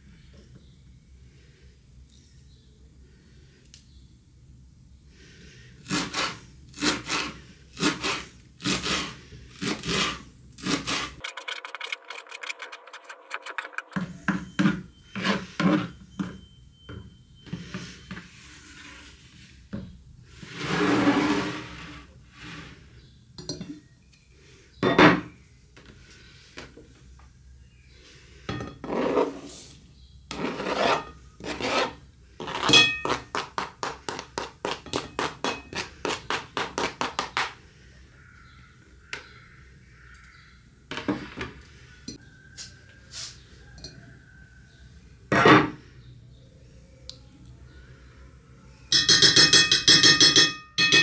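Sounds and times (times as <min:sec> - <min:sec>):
long scrape: 0:17.8 - 0:19.6, 0:20.3 - 0:22.9, 0:28.8 - 0:32.7.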